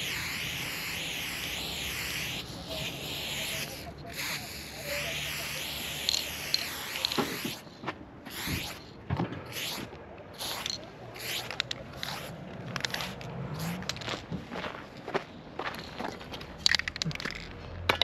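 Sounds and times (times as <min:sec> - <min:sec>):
spray can hissing bursts: 0:00.0 - 0:07.7, 0:08.3 - 0:08.9, 0:09.5 - 0:14.0, 0:16.6 - 0:17.4
small clicks and scuffs: 0:06.0 - 0:18.0.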